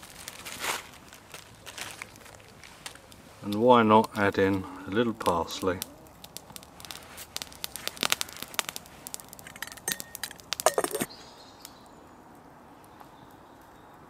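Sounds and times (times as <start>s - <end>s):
campfire burning and crackling: 0.0s - 14.0s
metal pot and lid clinking: 9.4s - 11.1s.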